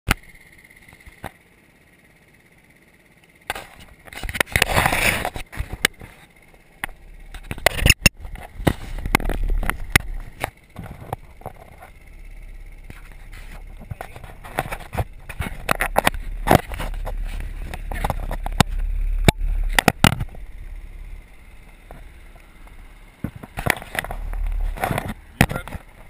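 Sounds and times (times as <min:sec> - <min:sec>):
sharp clicks and knocks: 0:06.8 - 0:26.0.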